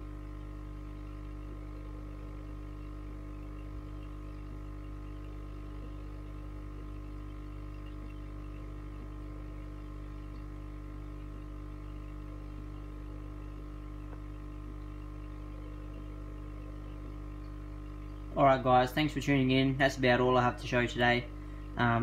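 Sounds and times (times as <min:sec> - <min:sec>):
aquarium equipment humming: 0:00.0 - 0:22.0
faint ticks: 0:02.8 - 0:18.3.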